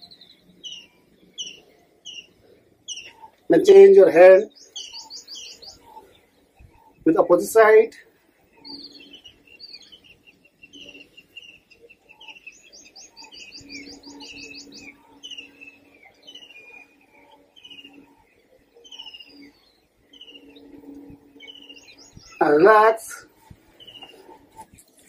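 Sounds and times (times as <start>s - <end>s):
birds chirping: 0.0s - 25.0s
faint low hum: 0.0s - 25.0s.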